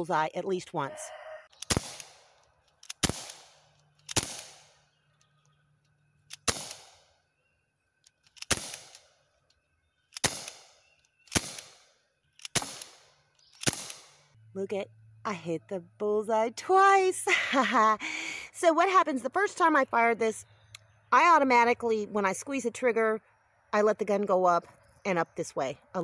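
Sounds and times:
bb gun shots: 0:01.6 - 0:02.3, 0:02.9 - 0:04.8, 0:06.4 - 0:07.1, 0:08.4 - 0:09.1, 0:10.1 - 0:14.2.

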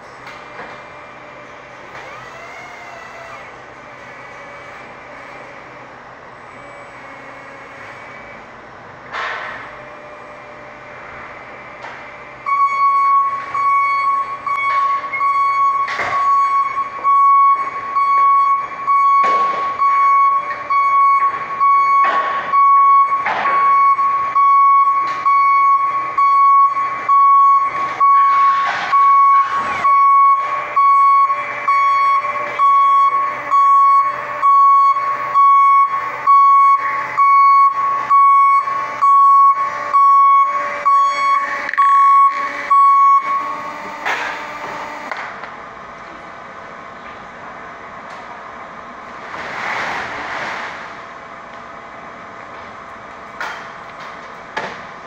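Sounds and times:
forklift reverse alarm beeping: 0:12.3 - 0:44.0.

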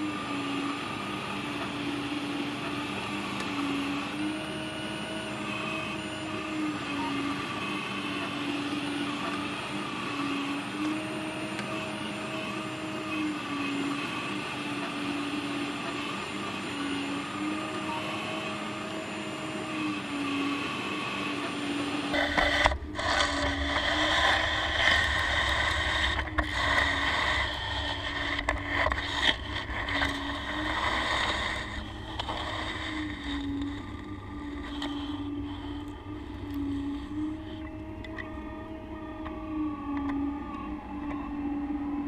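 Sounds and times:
hydraulic pump whining: 0:00.0 - 0:42.0
bucket scraping through dirt: 0:22.1 - 0:35.2.

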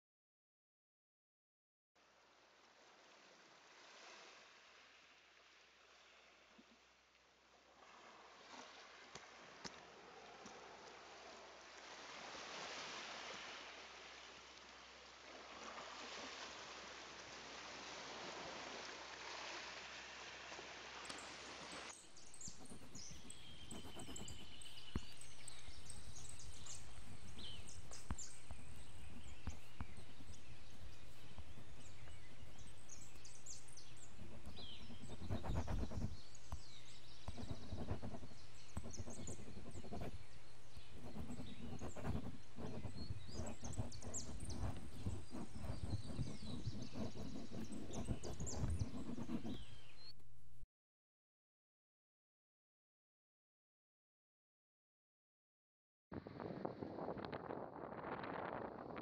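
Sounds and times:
birds chirping: 0:22.0 - 0:50.1.

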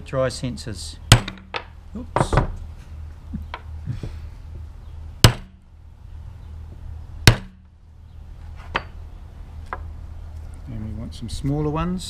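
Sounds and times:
hammer striking metal punch: 0:01.1 - 0:02.5, 0:05.2 - 0:05.6, 0:07.3 - 0:07.7.

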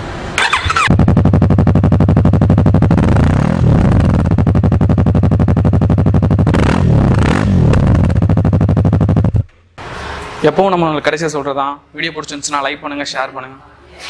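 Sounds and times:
motorcycle engine idling: 0:00.4 - 0:03.1, 0:04.0 - 0:06.6, 0:07.8 - 0:09.4
motorcycle engine revving: 0:00.4 - 0:09.5.

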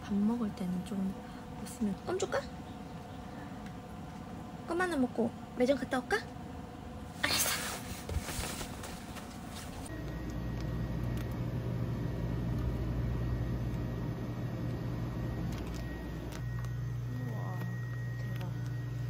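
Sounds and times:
refrigerated cooler humming: 0:00.0 - 0:19.0
faint high whine: 0:07.0 - 0:19.0
rustling: 0:07.2 - 0:09.9.

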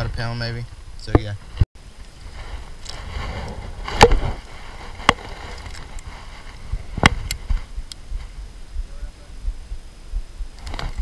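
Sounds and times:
wind rumble on microphone: 0:00.0 - 0:11.0.

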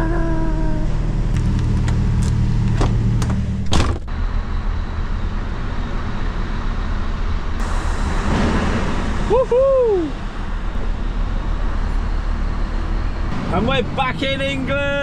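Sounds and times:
lorry engines idling: 0:00.0 - 0:15.0.

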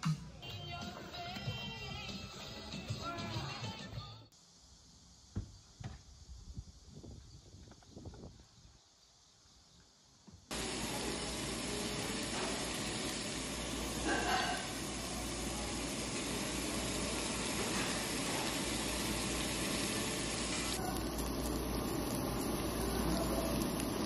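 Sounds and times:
meat sizzling on grill: 0:10.5 - 0:24.0.

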